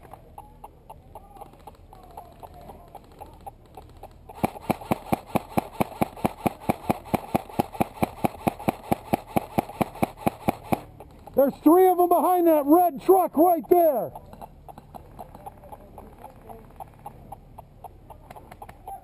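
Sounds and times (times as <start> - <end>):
airsoft rifle shots: 4.3 - 11.9.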